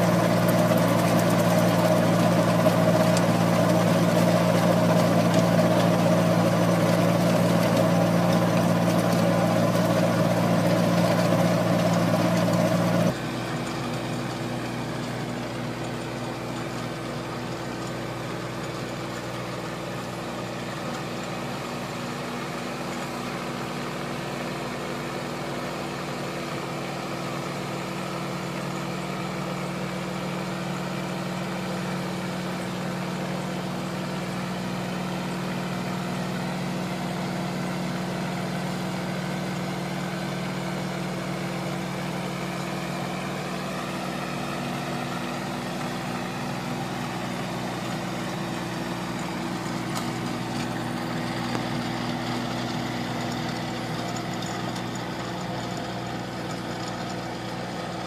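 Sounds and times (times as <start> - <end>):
tractor engine running: 0.0 - 58.0.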